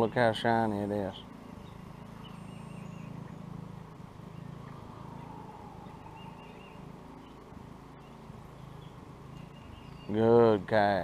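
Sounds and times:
low steady hum: 0:00.0 - 0:11.0
faint bird chirps: 0:01.2 - 0:03.5, 0:04.3 - 0:10.2.

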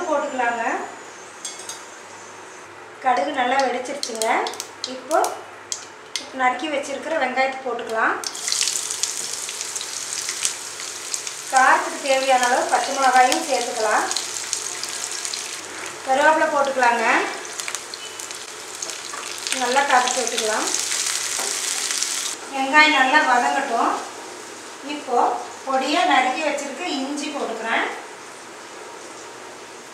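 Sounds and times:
onions sizzling in hot oil: 0:08.2 - 0:22.4.

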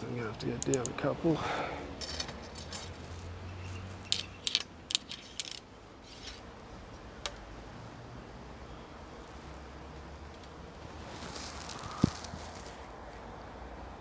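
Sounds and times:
small metal parts clicking: 0:02.0 - 0:06.4.

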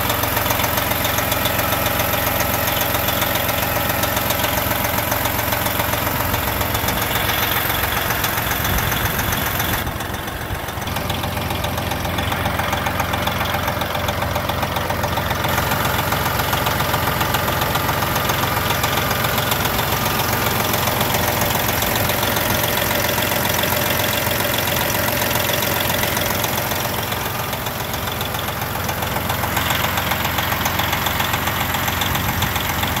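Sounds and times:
diesel truck engine idling: 0:00.0 - 0:33.0.

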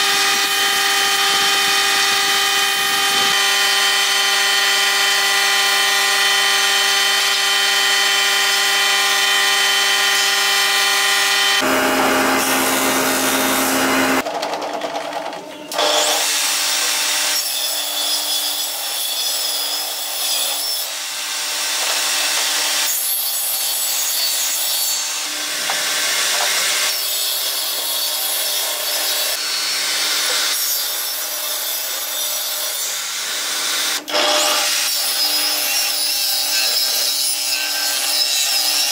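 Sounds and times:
power tool motor whine: 0:00.0 - 0:14.2
tool rasping wood: 0:00.0 - 0:14.2.

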